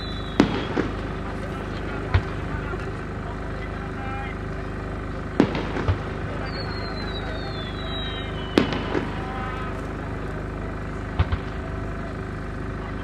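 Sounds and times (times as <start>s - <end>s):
firework whistle falling: 0.0s - 1.2s, 6.3s - 9.8s
firework bangs and pops: 0.0s - 3.2s, 5.2s - 12.6s.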